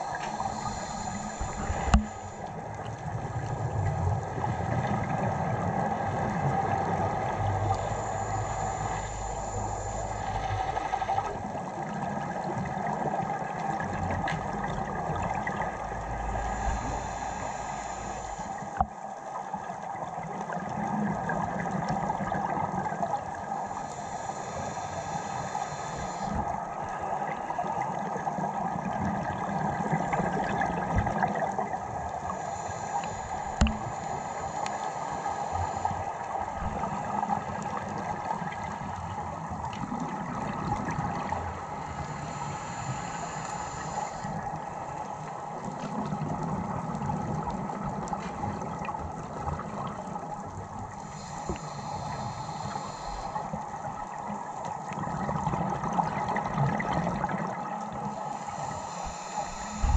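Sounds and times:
diver's exhaled breath bubbling: 0.0 - 2.6, 14.0 - 18.8, 28.8 - 38.5, 55.0 - 59.9
muffled underwater rushing: 0.0 - 59.9.

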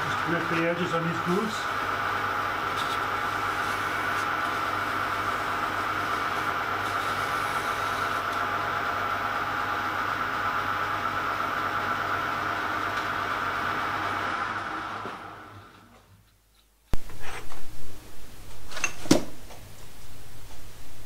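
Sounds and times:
metal lathe hum with whine: 0.0 - 15.8.

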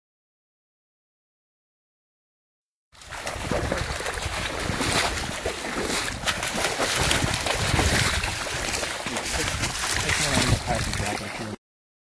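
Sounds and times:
splashing through shallow water: 3.0 - 11.6
wind buffeting microphone: 3.1 - 11.5.

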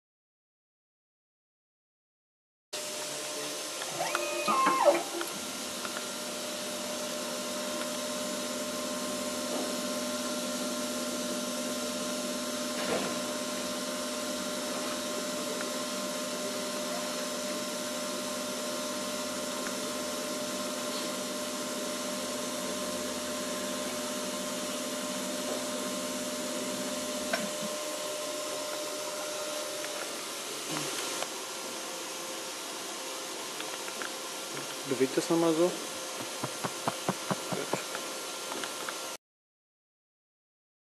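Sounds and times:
cutting machine humming: 2.8 - 31.0, 35.0 - 38.0.

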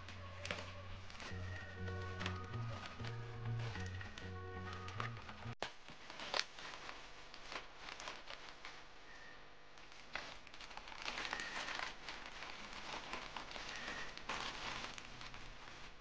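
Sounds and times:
scissors cutting plastic: 0.0 - 6.8
plastic wrapping crinkling: 0.0 - 16.0.

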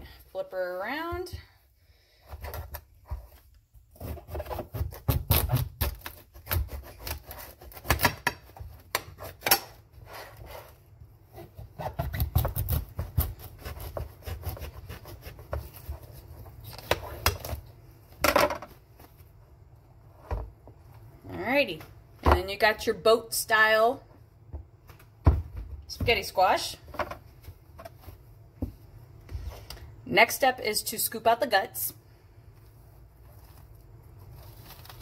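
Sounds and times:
knife sawing through squash rind: 4.0 - 7.9, 11.8 - 16.3.

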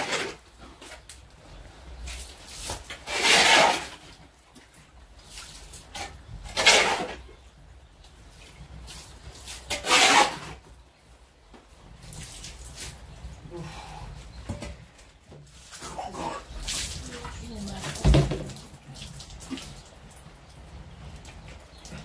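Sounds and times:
metal shovel scraping wet mud: 0.0 - 1.0, 2.2 - 4.3, 5.4 - 7.4, 9.1 - 10.6.

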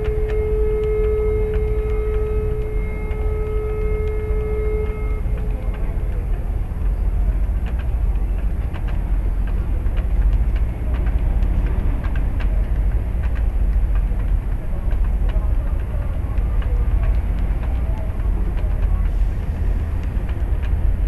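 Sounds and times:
ship's horn: 0.0 - 6.0
low rumble: 0.0 - 21.0.

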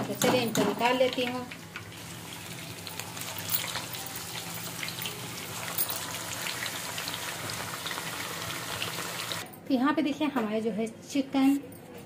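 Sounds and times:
chicken deep-frying in hot oil: 0.6 - 9.4.

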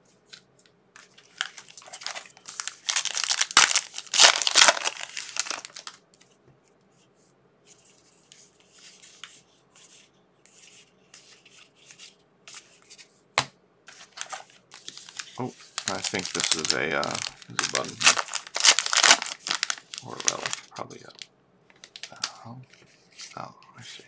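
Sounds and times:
cards being handled: 1.0 - 6.3, 13.9 - 23.4
card pack wrapper tearing: 1.2 - 6.0, 13.9 - 21.2, 21.8 - 22.3.

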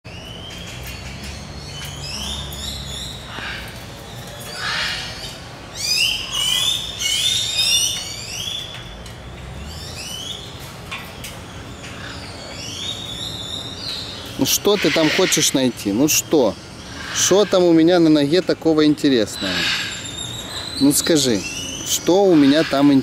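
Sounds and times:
birds whistling calls: 0.1 - 23.0.

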